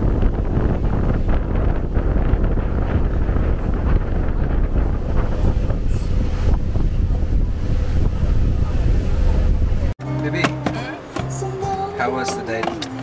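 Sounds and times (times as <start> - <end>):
wind buffeting microphone: 0.0 - 10.0
boat and water rumble: 0.0 - 13.0.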